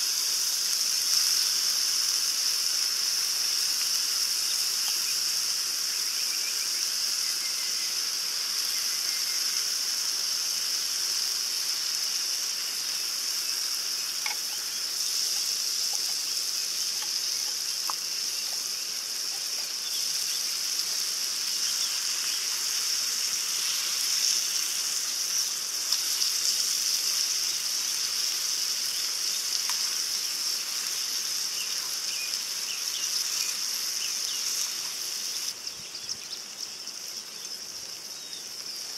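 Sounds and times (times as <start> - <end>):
meat sizzling in a frying pan: 0.0 - 38.9
small crackles and pops: 3.7 - 5.2, 12.8 - 35.5.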